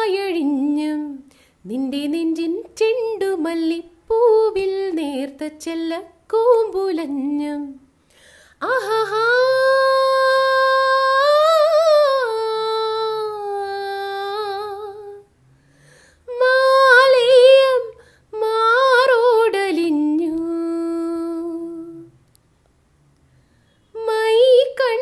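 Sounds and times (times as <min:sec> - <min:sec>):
woman singing wordless notes: 0:08.6 - 0:15.2, 0:16.3 - 0:22.1, 0:23.9 - 0:25.0.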